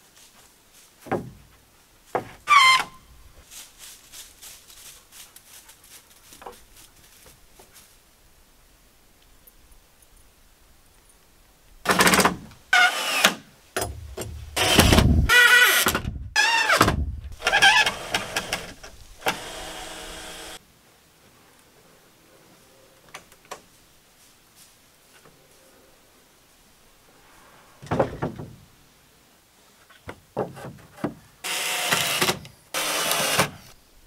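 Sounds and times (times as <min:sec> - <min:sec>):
cordless drill driving screws: 0:12.8 - 0:13.4, 0:14.6 - 0:16.8, 0:17.4 - 0:20.6, 0:31.4 - 0:33.6.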